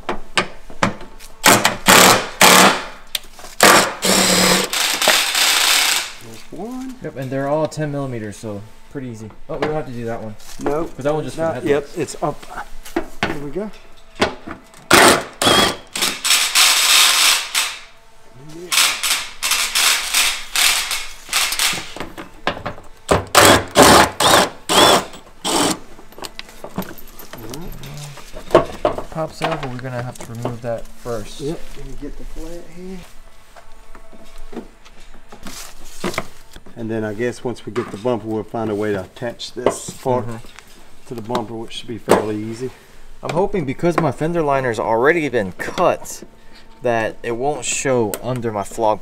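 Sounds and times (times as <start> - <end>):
cordless drill bursts: 1.4 - 2.9, 3.6 - 6.2, 14.9 - 17.9, 18.8 - 21.8, 23.3 - 25.8.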